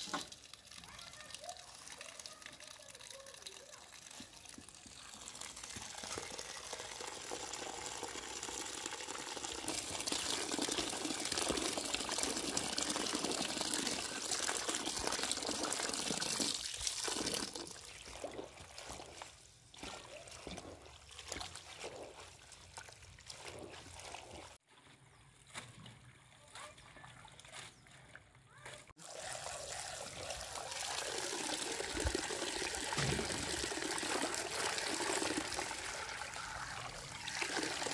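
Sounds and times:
tap water running into bowl: 0.0 - 18.4, 29.0 - 37.9.

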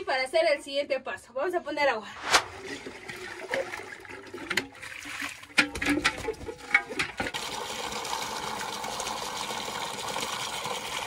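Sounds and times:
tap water pouring into pot: 2.5 - 11.0
pot knocking and clanking: 5.5 - 7.4.

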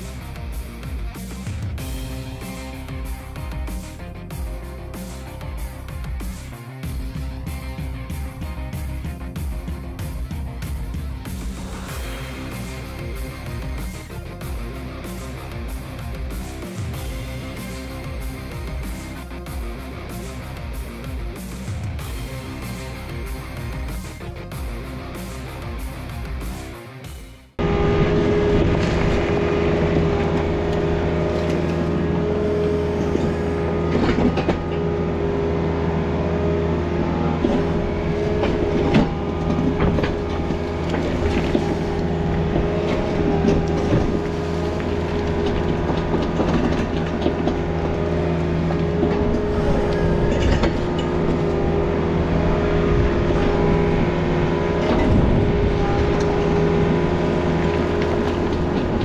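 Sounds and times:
excavator diesel engine: 0.0 - 59.0
rock clanking against steel: 37.4 - 51.8
bucket scraping rocky soil: 38.3 - 51.9.

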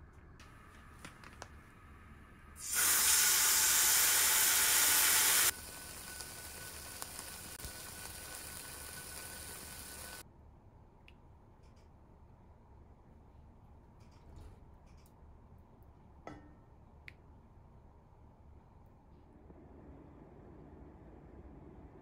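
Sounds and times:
chicken sizzling in frying pan: 2.6 - 10.2.

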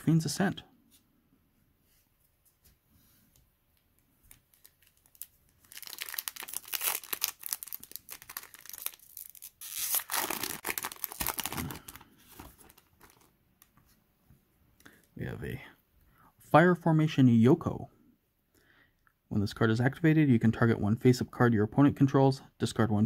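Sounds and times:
foil wrapper tearing and crinkling: 4.3 - 13.3.

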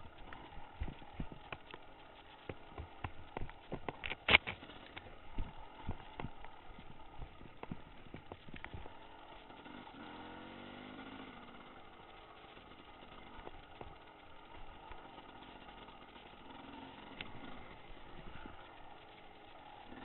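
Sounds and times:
dirt bike engine running: 0.0 - 20.0
sharp knocks from riding: 2.4 - 8.9.

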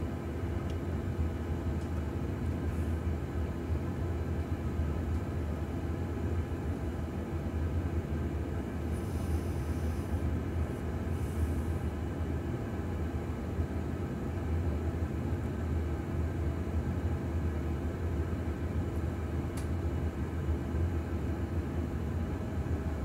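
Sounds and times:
jet engine rumble: 0.0 - 14.4
faint click: 19.5 - 19.8.

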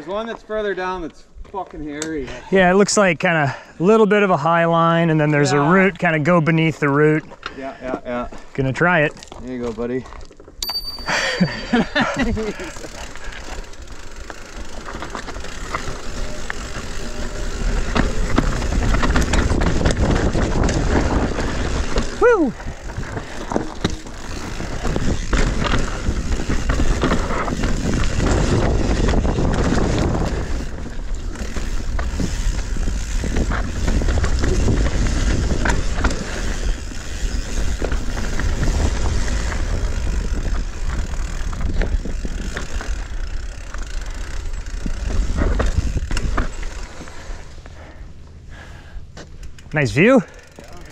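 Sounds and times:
bike tyres rattling on rocks: 6.8 - 47.6
wind on microphone: 17.5 - 43.2.

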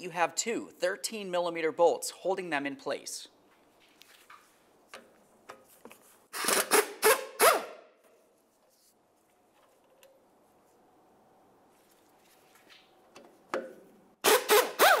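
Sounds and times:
power tool loosening bolts: 6.4 - 7.7.

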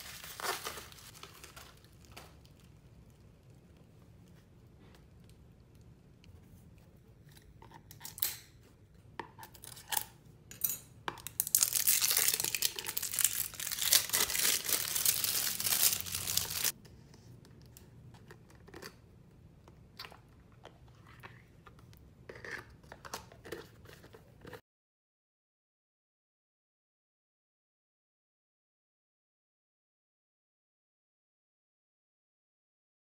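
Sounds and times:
plastic wrapping clicks and rustles: 0.0 - 2.7, 11.2 - 16.7
plastic wrapping tearing and crinkling: 0.0 - 2.7, 11.3 - 16.7.

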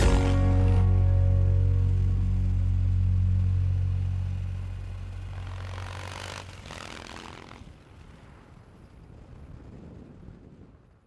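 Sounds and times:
music with sustained low notes: 0.0 - 6.0
motorcycle passing: 0.0 - 9.1.

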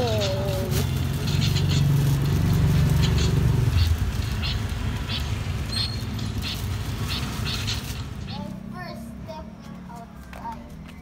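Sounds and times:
plastic bags crinkling: 0.0 - 5.0.

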